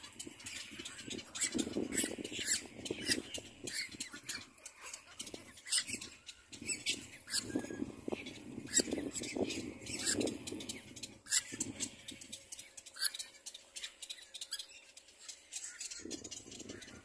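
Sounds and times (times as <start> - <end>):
bird chick squawking: 0.1 - 12.3.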